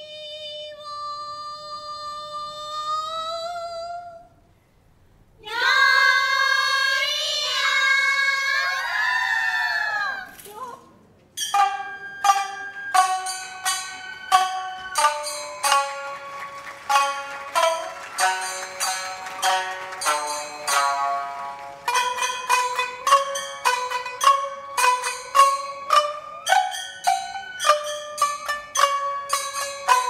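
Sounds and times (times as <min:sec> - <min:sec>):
women singing together: 0:05.4 - 0:08.8
shamisen plucked: 0:11.4 - 0:30.0.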